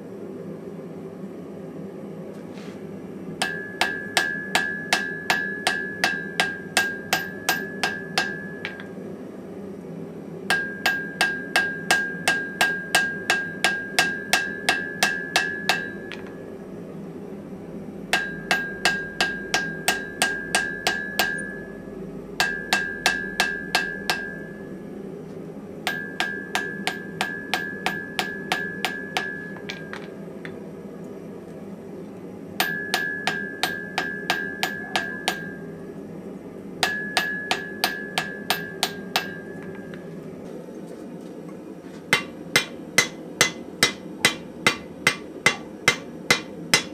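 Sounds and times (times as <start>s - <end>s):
low hum: 0.0s - 46.9s
anvil ringing: 3.4s - 8.9s, 10.5s - 16.4s, 18.2s - 21.8s, 22.4s - 24.7s, 25.9s - 30.1s, 32.6s - 35.6s, 36.8s - 40.0s
hammer blows on anvil: 3.4s - 8.9s, 10.5s - 16.4s, 18.1s - 21.7s, 22.4s - 24.6s, 25.9s - 30.2s, 32.6s - 35.6s, 36.8s - 40.1s.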